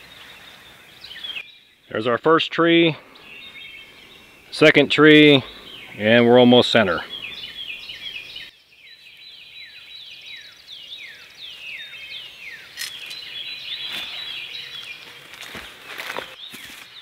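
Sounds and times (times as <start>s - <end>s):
songbird whistling: 7.0s - 15.0s.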